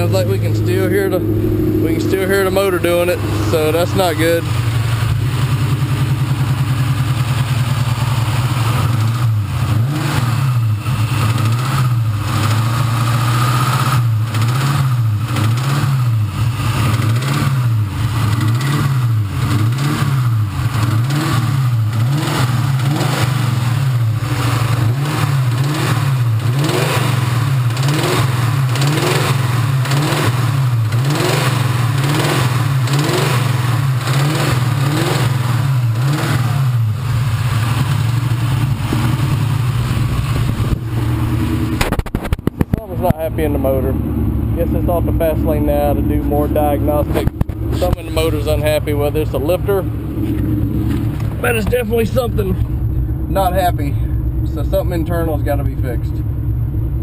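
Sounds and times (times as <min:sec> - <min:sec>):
car engine revving: 0:00.0 - 0:57.0
engine internal knock: 0:37.6 - 0:44.6, 0:46.9 - 0:48.3.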